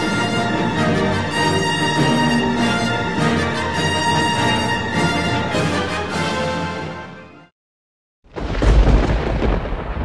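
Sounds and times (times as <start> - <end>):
orchestral theme music: 0.0 - 7.5.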